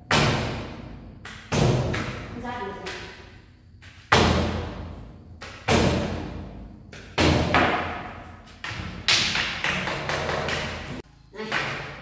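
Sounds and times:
broom thudding against wall: 3.8 - 9.4.

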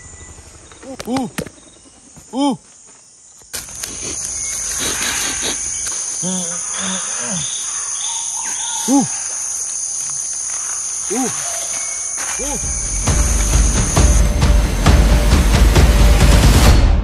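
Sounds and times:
high-pitched insect drone: 0.0 - 16.5
rising-and-falling calls: 4.0 - 14.4.

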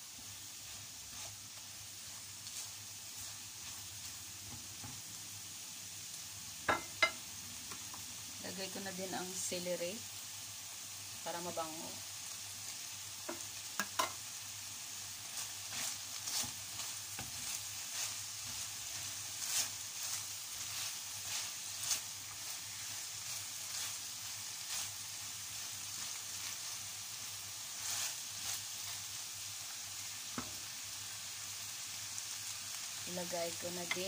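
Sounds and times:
food sizzling in a frying pan: 0.0 - 34.0
spatula scraping a pan: 0.2 - 5.0, 15.2 - 29.2.

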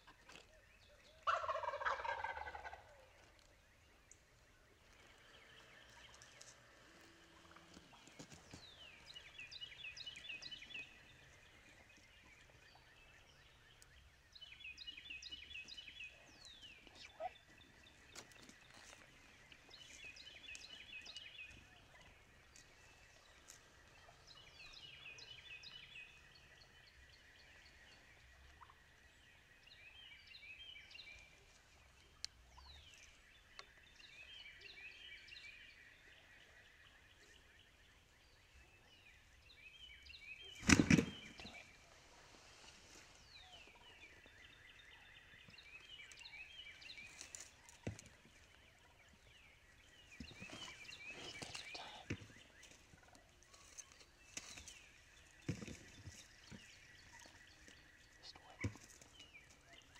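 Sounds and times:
turkey gobbling: 1.2 - 3.3.

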